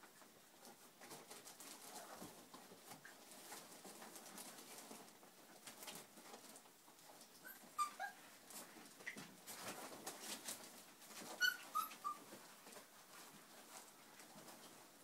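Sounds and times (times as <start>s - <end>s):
puppies scuffling: 0.0s - 15.0s
paws scratching on floor: 0.6s - 15.0s
puppies squeaking: 7.4s - 8.2s, 11.2s - 12.3s.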